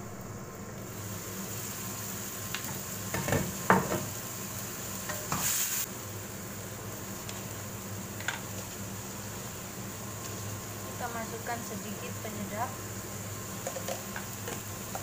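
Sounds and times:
light sizzle: 0.0s - 15.0s
knocks against pan: 3.1s - 4.1s
spatula scraping wok: 5.0s - 5.9s.

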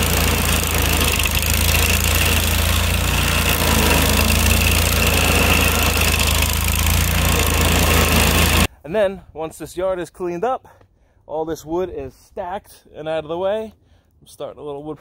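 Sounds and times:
cutter wheel grinding wood: 0.0s - 8.7s
stump grinder engine running: 0.0s - 8.7s.

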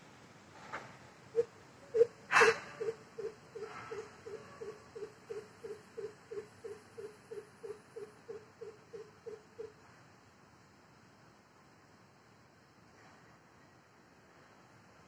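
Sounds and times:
bird hooting calls: 1.3s - 9.8s.

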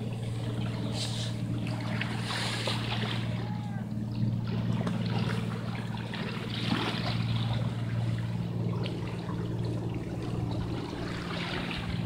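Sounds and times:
waves lapping against rocks: 0.0s - 3.4s
steady low hum: 0.0s - 12.0s.

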